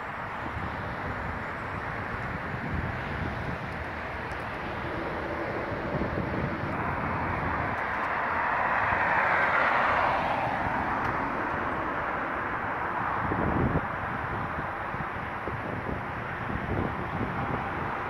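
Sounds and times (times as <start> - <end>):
steady road traffic: 0.0 - 18.0
vehicle passing close: 0.8 - 13.8.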